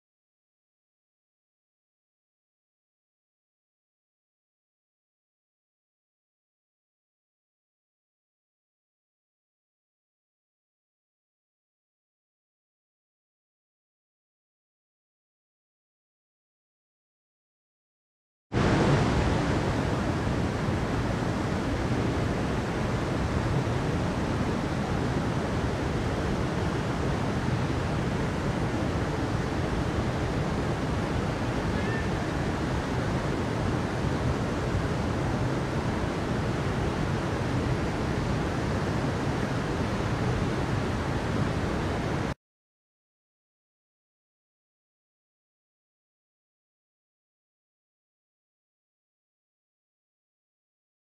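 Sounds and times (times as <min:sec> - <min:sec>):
stream running over rocks: 0:18.6 - 0:42.2.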